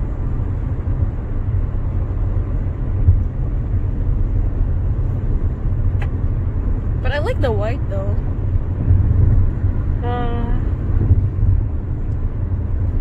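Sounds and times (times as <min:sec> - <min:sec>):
road and engine rumble in car: 0:00.0 - 0:13.0.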